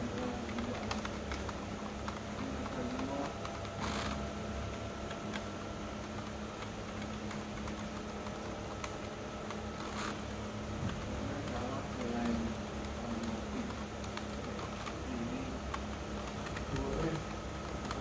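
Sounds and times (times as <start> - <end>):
keyboard keys clicking: 0.0 - 18.0.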